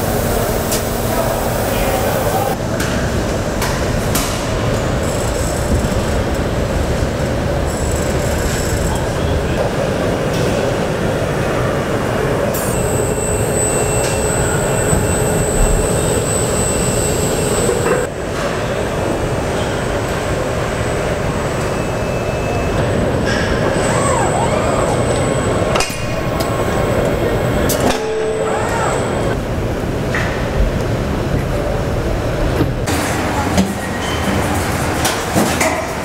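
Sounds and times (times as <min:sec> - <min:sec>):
thin high whine: 0:12.5 - 0:18.1, 0:24.8 - 0:29.4
machinery mechanical din: 0:12.6 - 0:18.1, 0:25.6 - 0:29.5.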